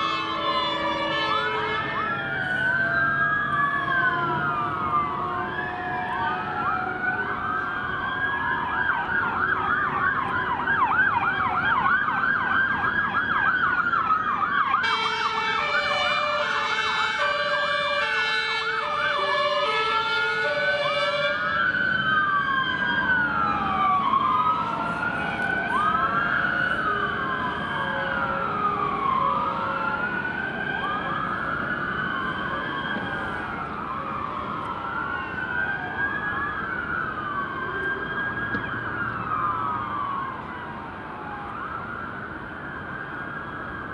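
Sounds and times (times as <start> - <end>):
two-tone siren: 0.0 - 43.9
wailing fire engine sirens: 0.0 - 43.9.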